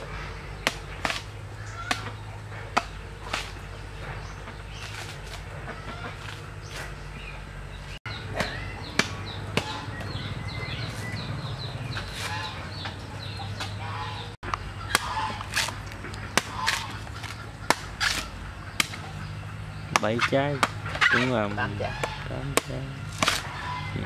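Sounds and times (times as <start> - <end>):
machete chopping coconuts: 0.0 - 7.0, 8.0 - 10.2, 14.5 - 19.2, 19.8 - 23.7
poultry clucking: 0.0 - 24.0
small birds chirping: 0.0 - 24.0.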